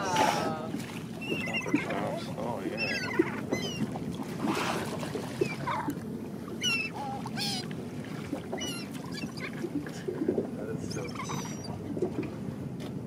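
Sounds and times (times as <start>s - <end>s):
low rumble of boat and water: 0.0s - 13.0s
gulls squawking: 1.2s - 4.0s, 6.6s - 7.7s, 8.5s - 9.7s, 10.8s - 11.8s.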